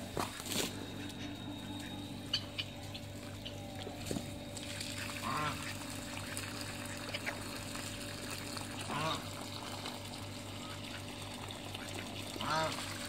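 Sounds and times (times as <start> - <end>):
low background hum: 0.0 - 13.0
duck quacking: 4.9 - 5.9, 8.8 - 9.3, 11.8 - 12.9.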